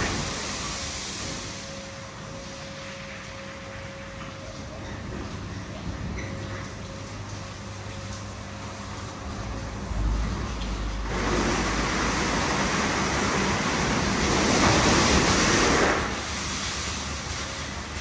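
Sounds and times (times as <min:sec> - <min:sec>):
water spraying onto car: 0:00.0 - 0:01.8, 0:07.4 - 0:18.0
car wash machine hum: 0:00.0 - 0:18.0.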